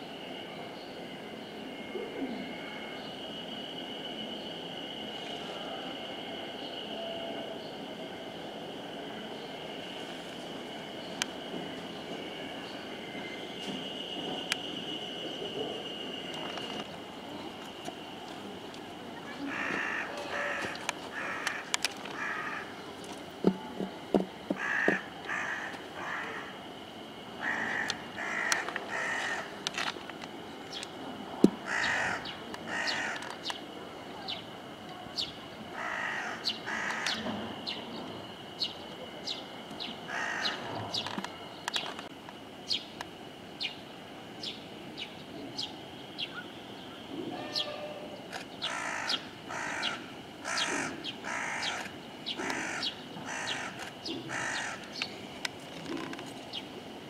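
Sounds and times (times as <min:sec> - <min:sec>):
faint steady high tone: 0:00.0 - 0:20.6, 0:43.8 - 0:48.3
crows cawing: 0:19.4 - 0:22.8, 0:24.5 - 0:26.6, 0:27.4 - 0:29.6, 0:31.6 - 0:33.4, 0:35.7 - 0:37.2, 0:40.1 - 0:40.7, 0:48.6 - 0:55.0.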